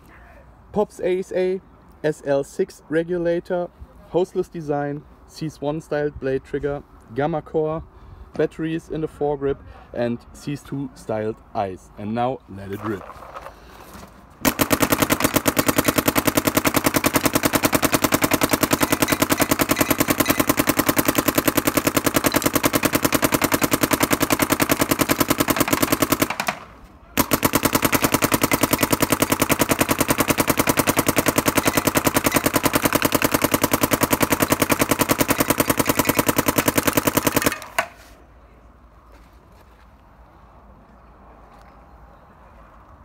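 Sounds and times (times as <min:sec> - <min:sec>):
paintball marker firing rapidly: 0:14.4 - 0:38.0.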